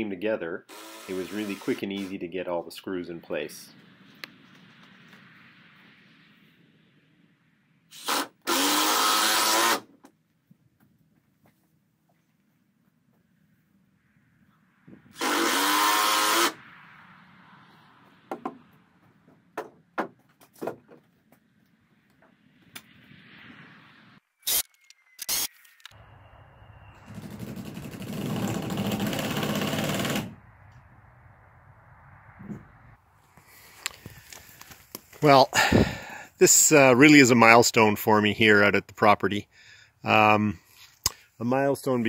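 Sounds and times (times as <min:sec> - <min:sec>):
cordless drill driving screws: 0:00.7 - 0:02.1, 0:07.9 - 0:09.9, 0:15.2 - 0:16.6
knocks and clicks of handling tools: 0:18.3 - 0:18.6, 0:19.2 - 0:21.4.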